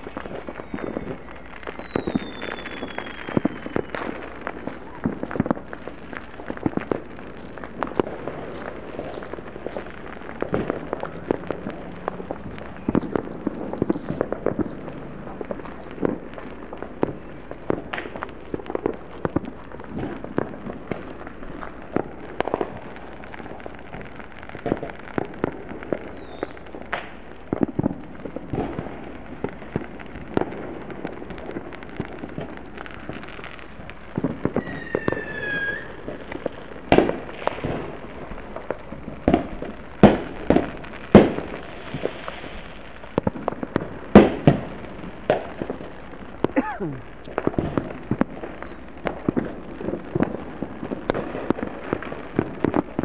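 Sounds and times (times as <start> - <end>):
firework whistle: 0.0 - 5.2, 17.0 - 18.2, 26.0 - 27.2, 34.4 - 37.8
distant fireworks pops and bangs: 0.0 - 53.0.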